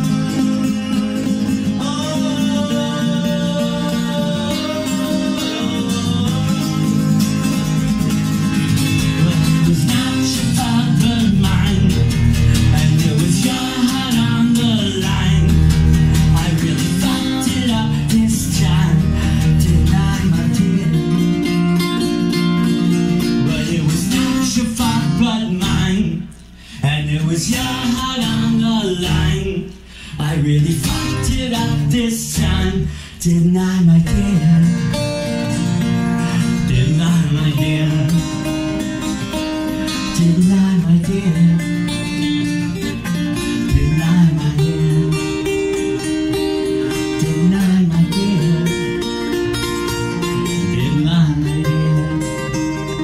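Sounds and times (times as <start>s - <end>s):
man singing: 0.0s - 7.7s, 8.8s - 35.5s, 36.3s - 53.0s
acoustic guitar strumming: 0.0s - 53.0s.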